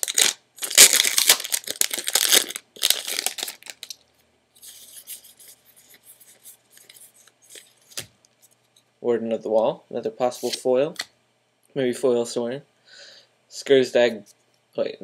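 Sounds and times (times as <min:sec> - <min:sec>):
foil wrapper tearing and crinkling: 0:00.0 - 0:04.0
cards rustling: 0:04.6 - 0:08.6.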